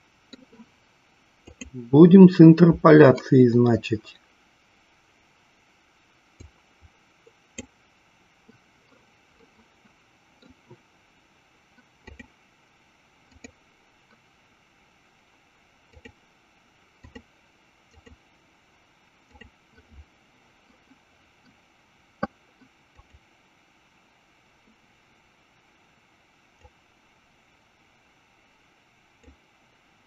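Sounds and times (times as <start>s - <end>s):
faint steady hiss: 0.0s - 30.0s
computer mouse clicks: 1.4s - 1.8s, 6.4s - 6.6s, 8.5s - 10.8s, 12.0s - 12.3s, 13.3s - 14.2s, 15.9s - 16.2s, 17.0s - 17.3s, 17.9s - 18.2s, 19.3s - 20.0s, 22.2s - 23.2s, 29.2s - 29.4s.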